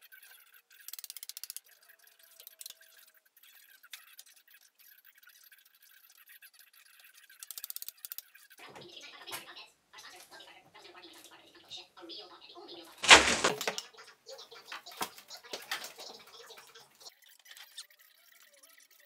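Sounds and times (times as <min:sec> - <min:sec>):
rapid clicking of hand tool: 0:00.0 - 0:01.7, 0:07.2 - 0:08.5
scraping rustle: 0:13.0 - 0:13.8.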